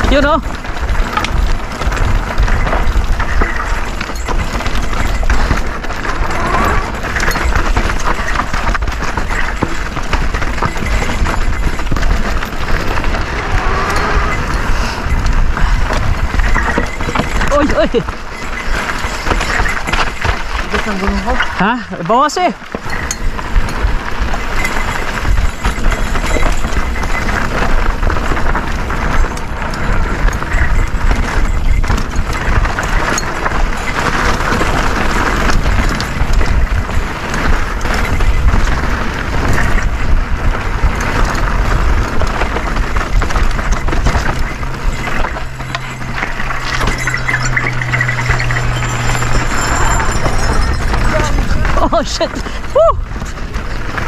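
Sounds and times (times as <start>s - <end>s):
bike rattling and clattering: 0.0s - 54.0s
wind and tyre noise: 0.0s - 54.0s
low steady hum: 43.6s - 53.7s.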